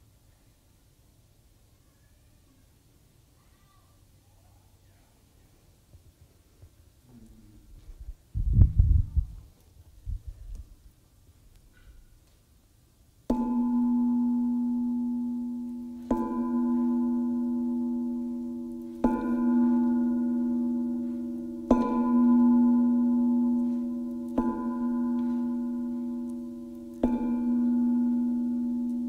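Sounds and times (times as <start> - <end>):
singing bowl ringing: 13.3 - 29.0.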